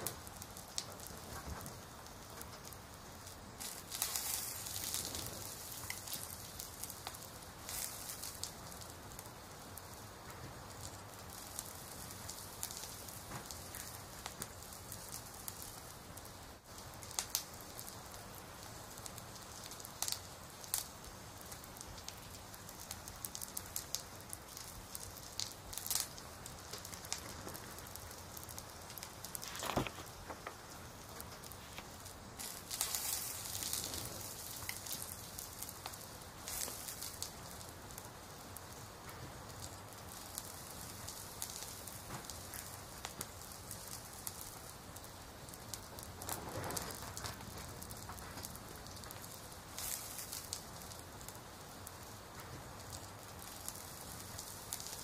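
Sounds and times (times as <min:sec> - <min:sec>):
small crackles and ticks: 0:00.0 - 0:55.0
steady hiss: 0:00.0 - 0:55.0.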